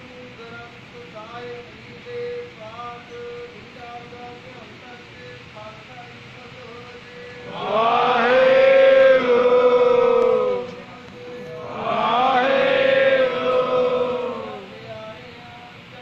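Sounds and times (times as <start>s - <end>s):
group chanting together: 7.5s - 10.8s, 11.5s - 14.7s.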